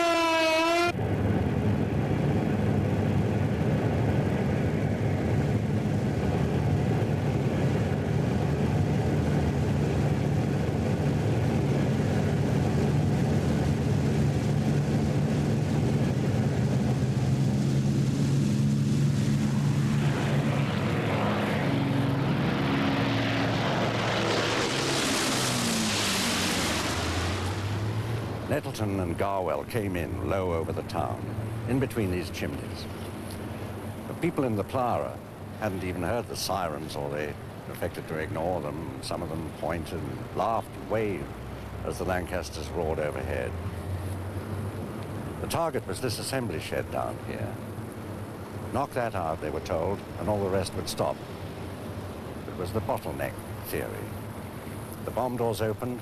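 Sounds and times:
air-raid siren wailing: 0:00.0 - 0:01.0
rushing noise: 0:00.0 - 0:29.2
propeller plane engines droning: 0:00.0 - 0:56.0.

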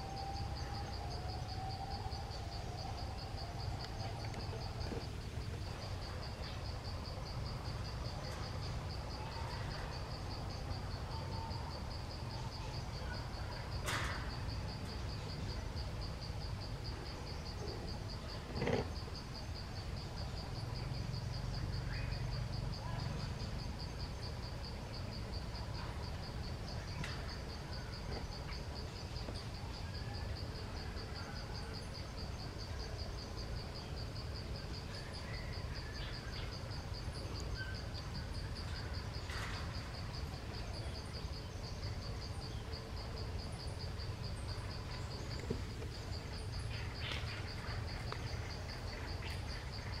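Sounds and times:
insects trilling: 0:00.0 - 0:50.0.

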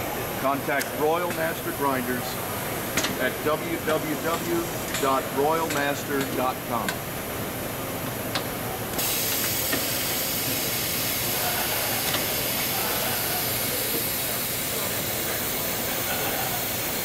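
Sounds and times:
steady hiss: 0:09.0 - 0:17.0.

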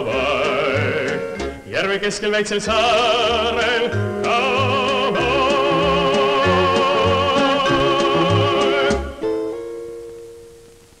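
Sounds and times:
instrumental accompaniment: 0:00.0 - 0:01.9, 0:02.7 - 0:10.8
baritone singing with vibrato: 0:00.0 - 0:09.3.

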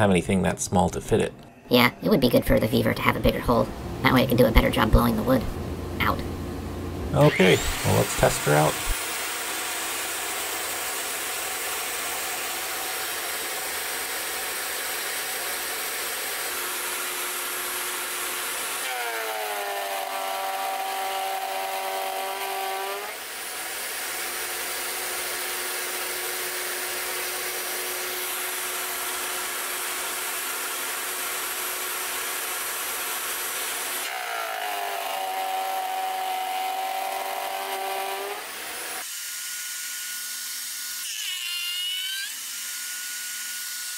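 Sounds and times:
thickness planer running: 0:05.5 - 0:39.1
planer whining while cutting board: 0:07.1 - 0:43.9.

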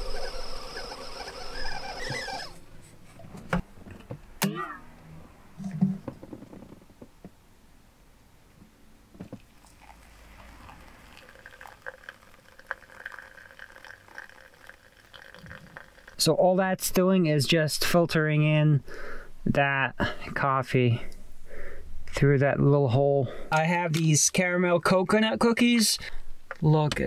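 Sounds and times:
kettle whistling: 0:00.0 - 0:02.6, 0:09.6 - 0:16.2
hot water pouring onto coffee: 0:09.3 - 0:16.2.

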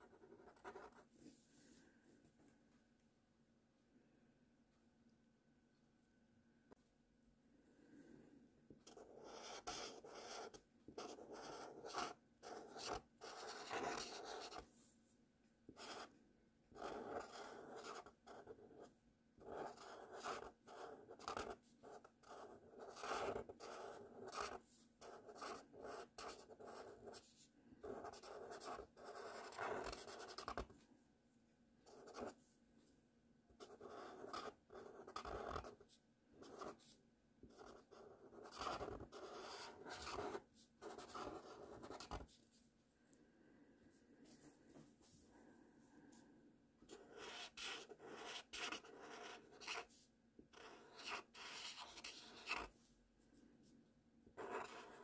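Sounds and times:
marker scratching on paper: 0:00.0 - 0:01.0, 0:08.8 - 0:14.7, 0:15.8 - 0:16.1, 0:16.8 - 0:30.7, 0:31.9 - 0:32.4, 0:33.6 - 0:42.4, 0:46.9 - 0:52.8, 0:54.4 - 0:55.0.

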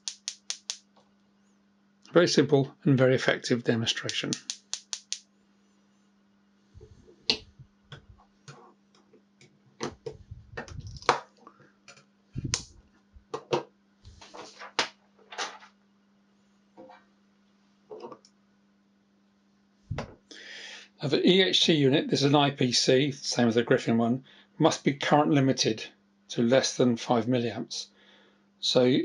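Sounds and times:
steady hum: 0:00.0 - 0:17.4, 0:19.7 - 0:23.7.

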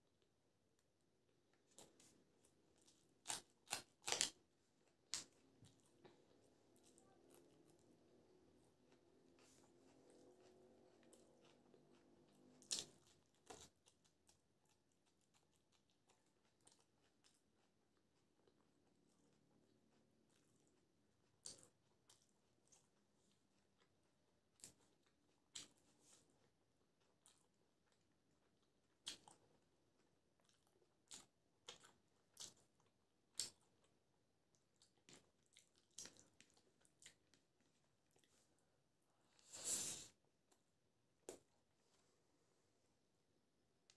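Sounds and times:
wet chewing clicks: 0:01.5 - 0:23.9, 0:24.6 - 0:38.4
crunchy bites: 0:02.8 - 0:05.8.

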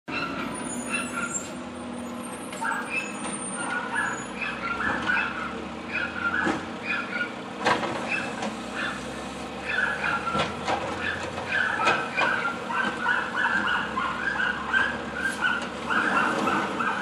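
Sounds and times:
short high squeaks: 0:00.1 - 0:04.6, 0:15.2 - 0:16.4
garbage truck diesel engine: 0:00.1 - 0:17.0
cart banging on hopper: 0:07.6 - 0:08.6, 0:09.8 - 0:14.0.

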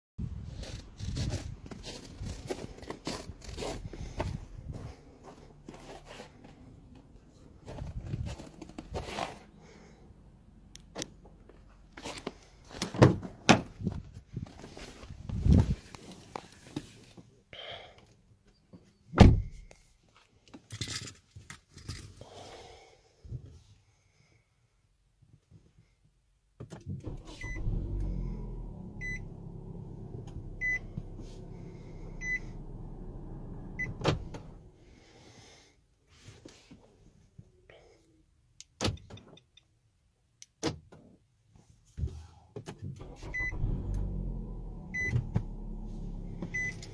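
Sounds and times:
car door thunks: 0:19.2 - 0:19.5, 0:33.8 - 0:34.6
car engine starting and idling: 0:26.9 - 0:35.1, 0:42.8 - 0:46.9
car warning chime beeping: 0:29.0 - 0:29.4, 0:30.5 - 0:33.0, 0:33.7 - 0:34.2, 0:43.2 - 0:43.6, 0:44.9 - 0:45.2, 0:46.5 - 0:46.9.

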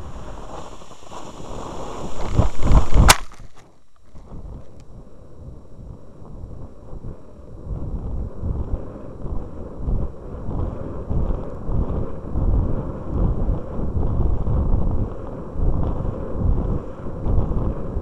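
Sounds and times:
wind buffeting microphone: 0:00.0 - 0:03.2, 0:04.2 - 0:18.0.

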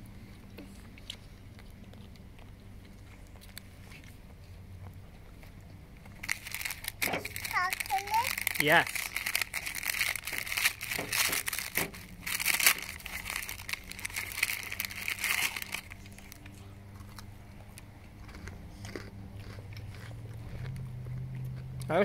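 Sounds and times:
low steady hum: 0:00.0 - 0:22.0
crunching: 0:04.8 - 0:21.9
food wrapper crinkling: 0:06.1 - 0:17.3.

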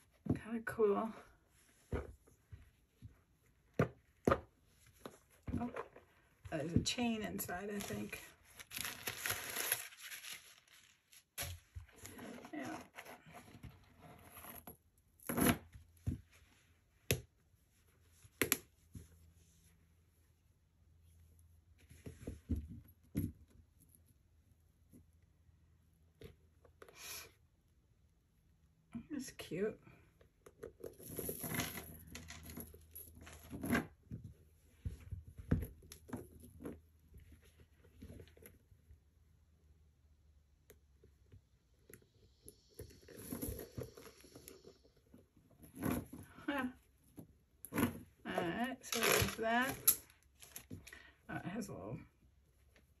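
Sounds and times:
rustling: 0:07.7 - 0:15.4, 0:42.0 - 0:51.1
chain strap clatter: 0:30.8 - 0:33.8
handbag rustling: 0:42.6 - 0:44.8.

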